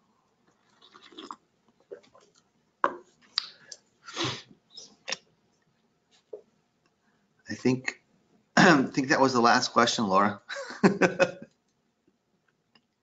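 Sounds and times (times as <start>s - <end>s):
person sipping and swallowing: 0.5s - 2.3s
lip smacks and mouth clicks: 1.9s - 3.8s.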